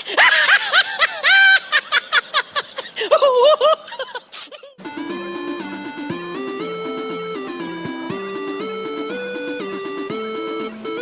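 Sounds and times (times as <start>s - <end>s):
high-pitched cackling laughter: 0.0s - 4.8s
electronic game-like music: 4.8s - 11.0s.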